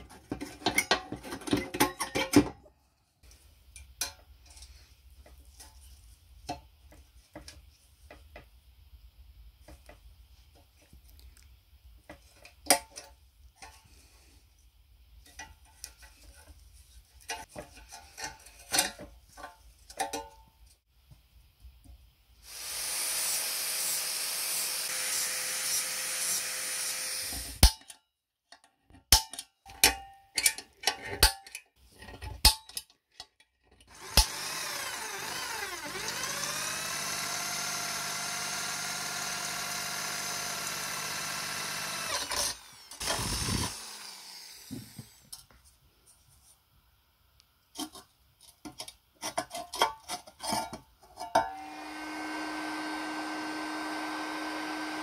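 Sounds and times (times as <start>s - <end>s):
electric drill boring into metal: 22.4s - 27.6s, 33.9s - 45.2s, 51.5s - 55.0s.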